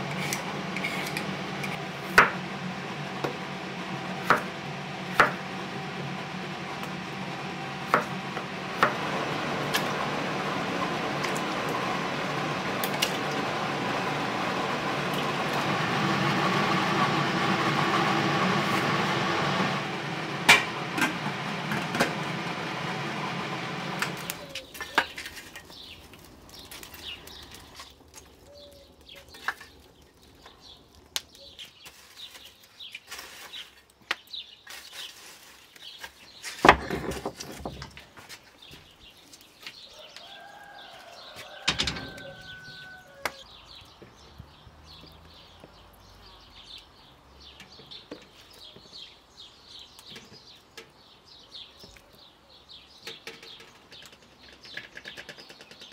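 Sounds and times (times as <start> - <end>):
poker raking charcoal embers: 0.0 - 44.2.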